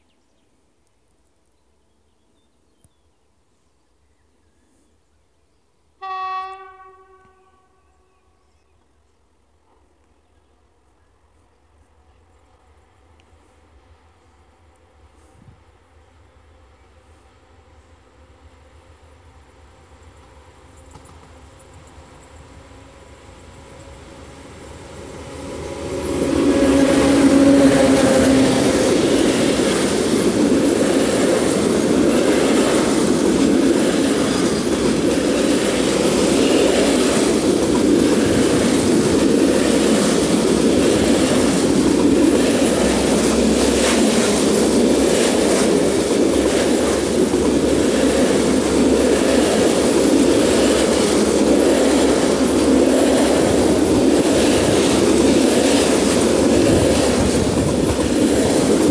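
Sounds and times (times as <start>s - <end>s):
electric locomotive hum: 6.0s - 58.9s
train wheels clattering on rails: 20.2s - 22.6s, 23.8s - 58.9s.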